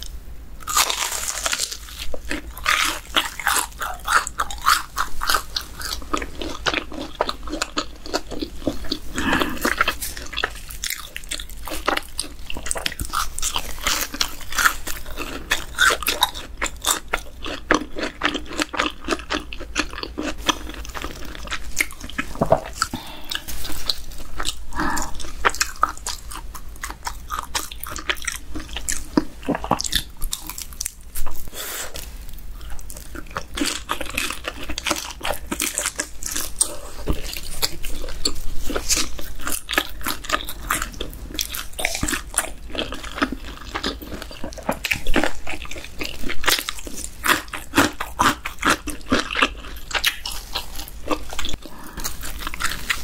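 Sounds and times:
crunchy chewing: 0.0 - 53.0.

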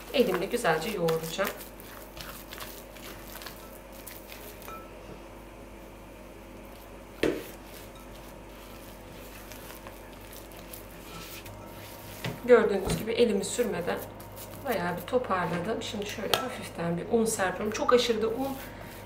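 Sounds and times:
spatula scraping dough in bowl: 0.0 - 4.7, 7.3 - 15.8.

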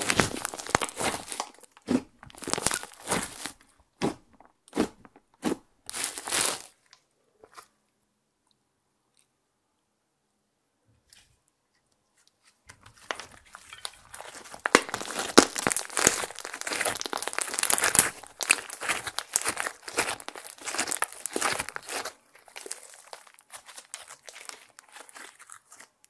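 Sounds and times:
hands squeezing slime: 0.0 - 6.7, 14.0 - 26.0.

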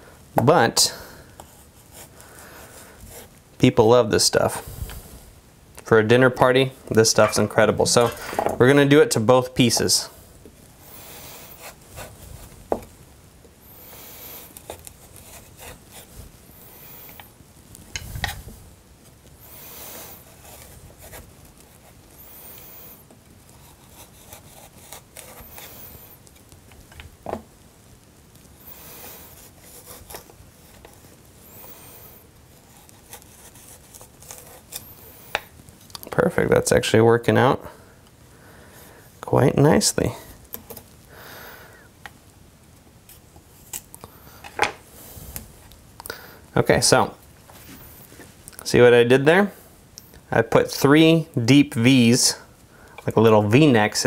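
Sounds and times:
knife scraping carrot: 19.5 - 26.2, 28.8 - 35.5.

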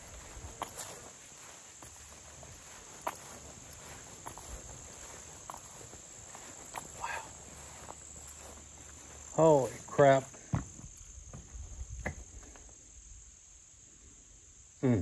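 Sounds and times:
footsteps through grass: 0.0 - 12.0
insect chorus: 0.0 - 15.0.

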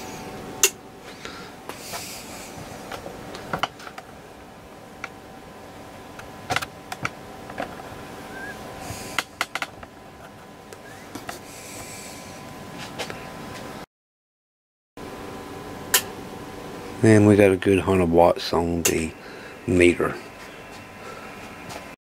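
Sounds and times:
faint electrical hum and hiss: 0.0 - 13.8, 15.1 - 22.0.

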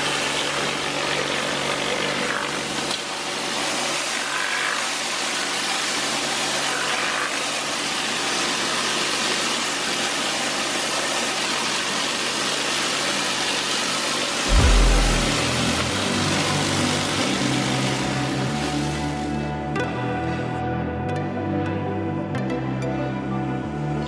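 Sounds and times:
pressure washer engine running: 14.5 - 19.4
music with heavy bass: 14.5 - 24.0.

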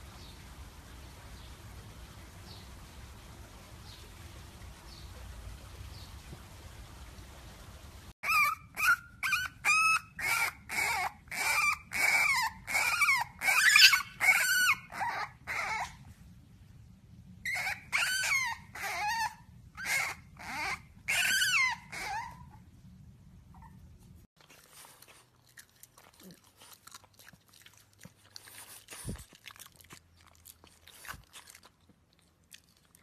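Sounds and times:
puppy yipping and barking: 8.2 - 16.0, 17.4 - 22.6.

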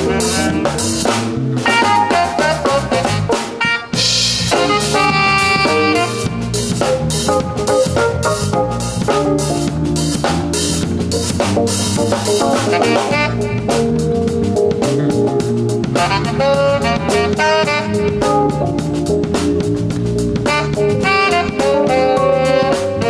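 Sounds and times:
drum kit steady beat: 0.0 - 23.0
electronic keyboard chords: 0.0 - 23.0
quick melody line: 0.0 - 23.0.

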